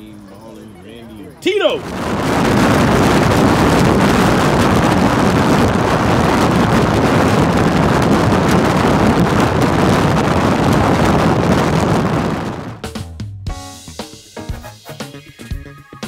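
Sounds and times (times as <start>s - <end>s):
road noise: 0.0s - 12.8s
wind rushing over microphone: 1.3s - 12.9s.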